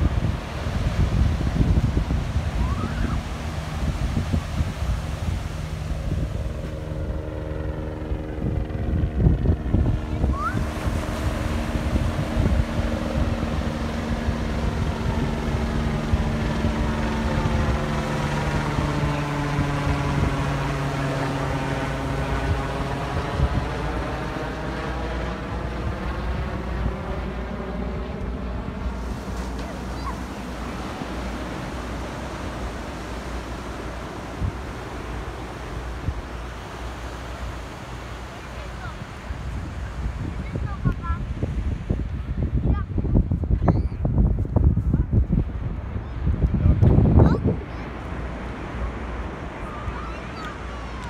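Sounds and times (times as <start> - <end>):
engine droning: 0.0 - 41.2
wind buffeting microphone: 0.0 - 51.0
small surf breaking: 28.9 - 41.2.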